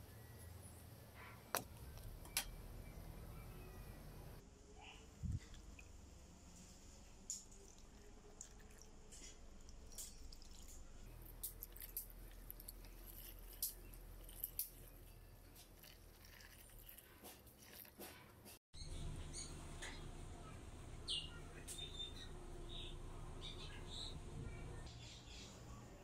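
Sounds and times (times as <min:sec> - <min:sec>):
small splashes and drips: 0:07.2 - 0:14.9, 0:15.6 - 0:18.2.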